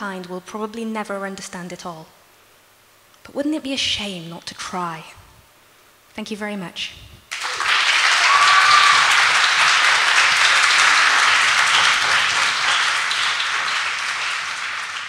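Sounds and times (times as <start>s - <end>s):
audience applauding: 7.3s - 15.0s.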